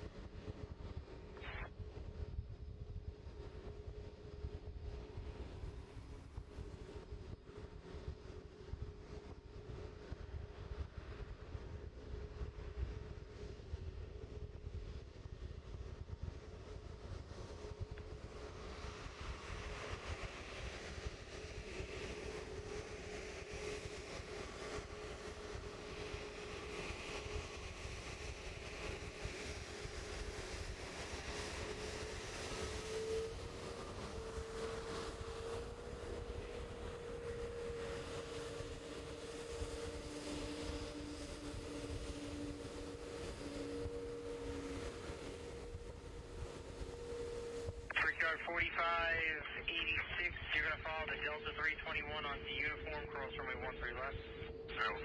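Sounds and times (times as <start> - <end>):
jet engines idling: 21.0 - 55.0.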